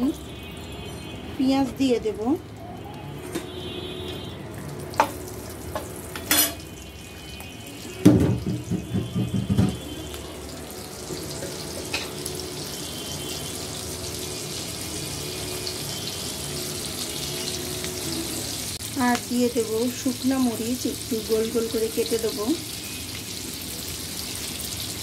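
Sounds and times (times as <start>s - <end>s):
onions sizzling in oil: 0.0s - 25.0s
metal spatula knocking pan: 8.0s - 9.8s.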